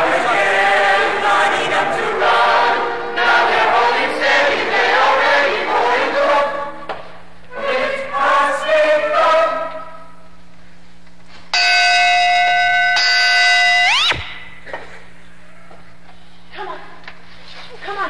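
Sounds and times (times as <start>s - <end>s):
chorus singing: 0.0s - 10.3s
low recording hum: 0.0s - 18.0s.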